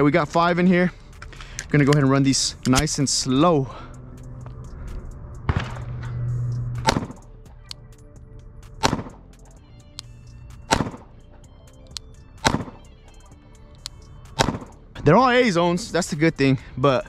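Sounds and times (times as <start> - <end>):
quiet background music: 0.0 - 17.0
pistol shots: 6.8 - 7.3, 8.8 - 9.2, 10.6 - 11.1, 12.4 - 12.9, 14.3 - 14.8.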